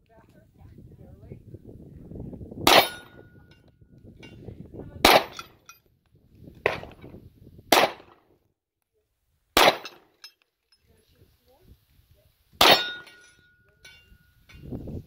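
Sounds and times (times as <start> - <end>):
handgun shots: 7.7 - 8.2, 9.6 - 10.0, 12.6 - 13.1.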